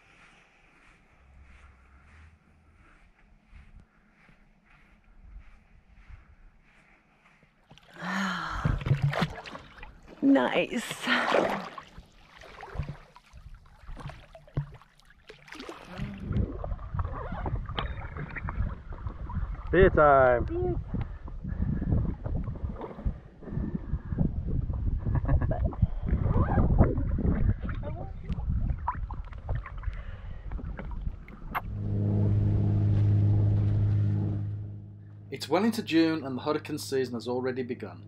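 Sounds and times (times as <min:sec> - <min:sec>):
water lapping and gurgling: 0:07.7 - 0:34.1
small clicks and splashes: 0:08.6 - 0:10.2, 0:10.8 - 0:19.8, 0:27.0 - 0:31.6
rumbling wind: 0:15.9 - 0:38.0
boat engine droning: 0:31.4 - 0:38.0.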